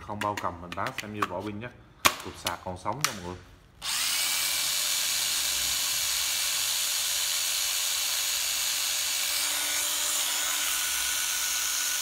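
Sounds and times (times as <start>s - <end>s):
cordless drill motor whine: 3.8s - 12.0s.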